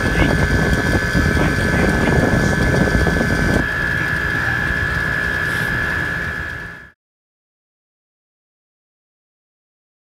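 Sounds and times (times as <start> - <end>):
high whine: 0.0 - 7.0
machine hum and fan noise: 0.0 - 7.0.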